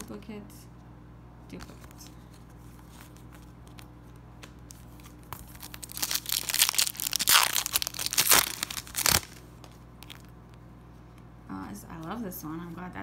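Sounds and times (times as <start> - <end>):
foil wrapper crinkling and tearing: 4.6 - 10.3.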